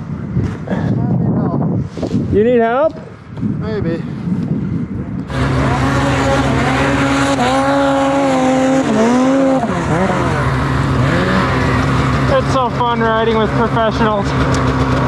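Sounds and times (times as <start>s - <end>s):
snowmobile engine at high revs: 5.3s - 15.0s.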